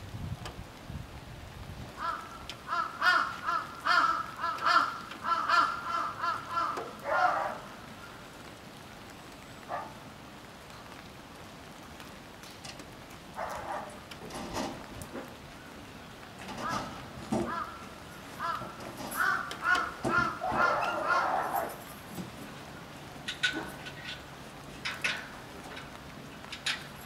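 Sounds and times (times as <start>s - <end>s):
crows cawing: 2.0s - 8.2s, 16.6s - 21.8s.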